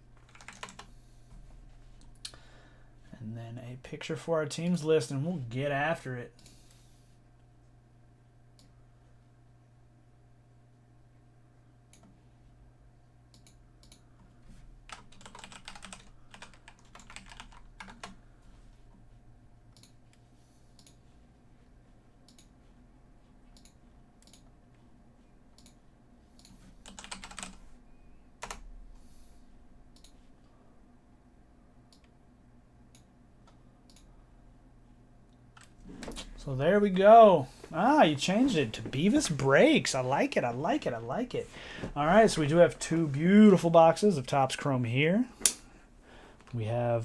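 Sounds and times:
low steady hum: 0.0 - 47.0
typing on computer keyboard: 0.2 - 0.9, 14.9 - 18.2, 26.4 - 27.6, 28.4 - 28.6.

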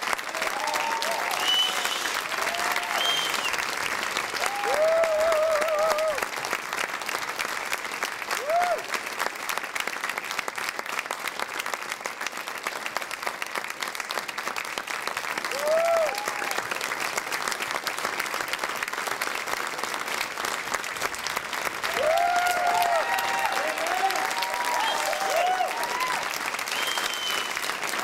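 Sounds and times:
audience applauding: 0.0 - 28.0
voices whooping cheers: 0.3 - 3.5, 4.4 - 6.2, 8.4 - 8.9, 15.5 - 16.6, 21.8 - 27.6.

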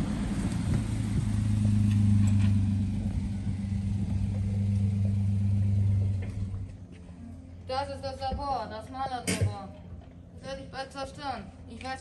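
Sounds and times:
vehicle engine humming: 0.0 - 7.9.

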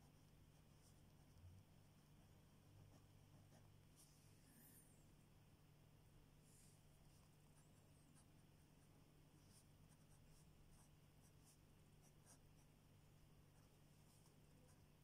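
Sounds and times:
pen scratching on paper: 0.0 - 4.8, 9.4 - 12.8
low steady hum: 0.0 - 15.0.

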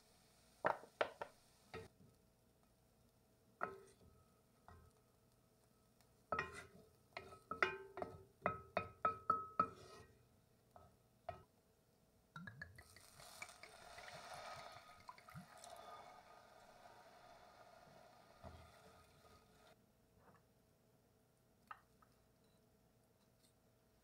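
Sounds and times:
wine sizzling in hot pot: 0.0 - 1.9, 12.5 - 19.8
wooden spoon clinking on pot: 6.3 - 10.0.

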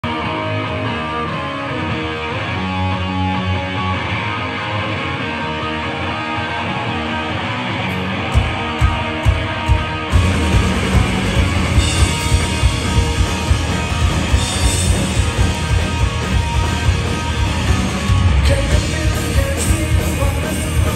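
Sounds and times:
electric guitar playing: 0.0 - 20.9
punk rock band playing: 0.0 - 20.9.

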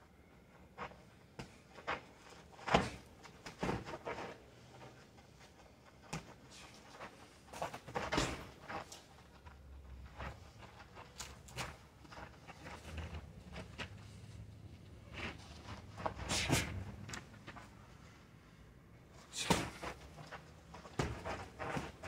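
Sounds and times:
boxing gloves thudding: 2.6 - 4.0, 7.7 - 8.6, 19.4 - 22.0
feet shuffling on dirt: 19.7 - 22.0.

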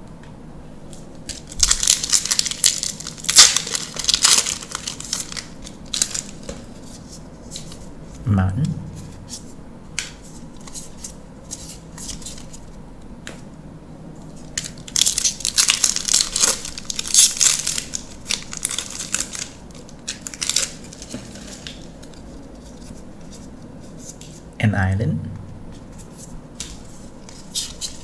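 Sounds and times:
foil wrapper crinkling and tearing: 1.3 - 6.7, 14.5 - 23.4.

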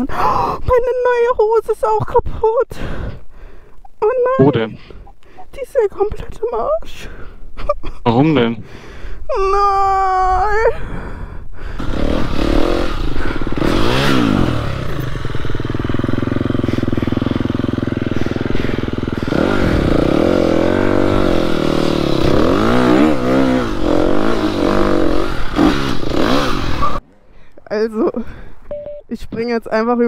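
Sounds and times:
dirt bike engine revving: 11.8 - 27.0.

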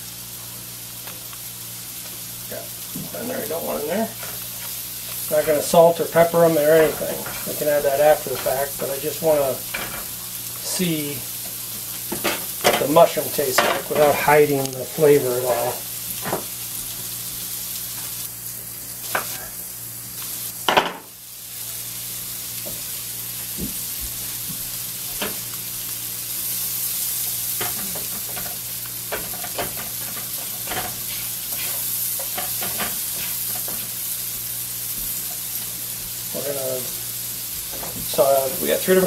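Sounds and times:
mushrooms sizzling in butter: 0.0 - 39.0
spatula scraping a pan: 3.6 - 10.2, 27.5 - 33.9.

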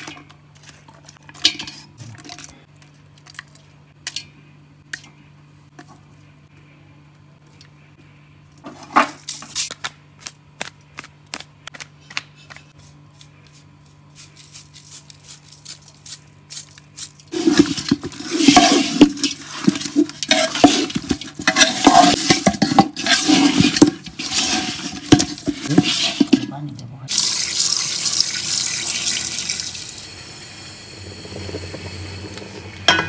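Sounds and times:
faint low hum: 0.0 - 9.0
hand squelching meat in pot: 17.3 - 26.5.

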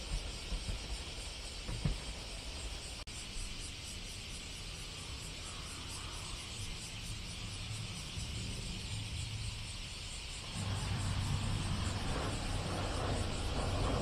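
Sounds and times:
train rumbling: 0.0 - 3.0, 6.4 - 14.0
steady high hiss: 0.0 - 14.0.

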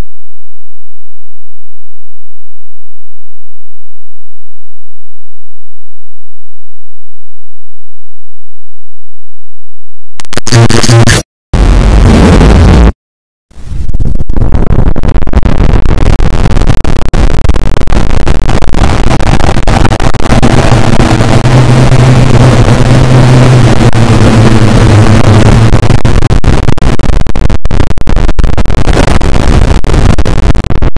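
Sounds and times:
low steady drone: 18.9 - 26.4.

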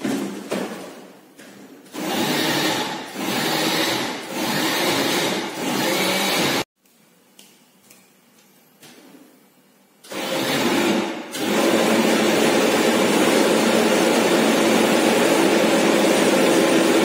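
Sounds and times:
electric blender grinding: 2.0 - 6.7, 10.1 - 17.0.

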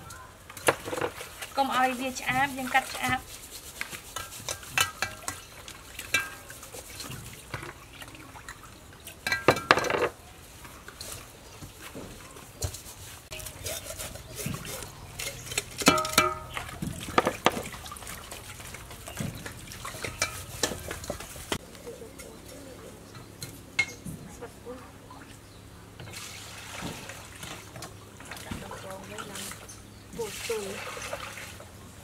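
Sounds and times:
water sloshing in bowls: 0.0 - 32.0
knocks against bowls: 9.2 - 10.2, 15.3 - 17.7.

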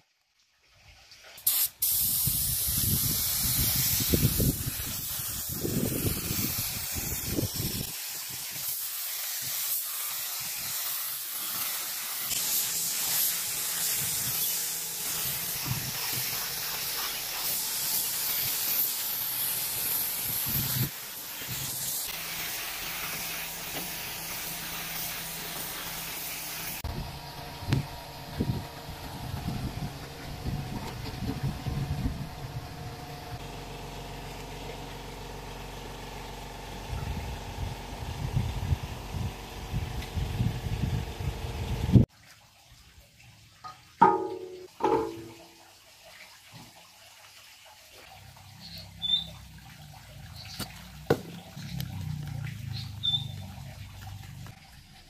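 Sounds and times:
spray hiss: 1.4 - 26.9.

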